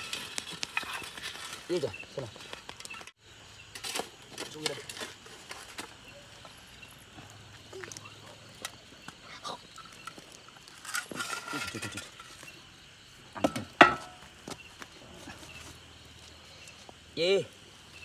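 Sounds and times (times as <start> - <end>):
shovel scraping and knocking: 10.7 - 12.5.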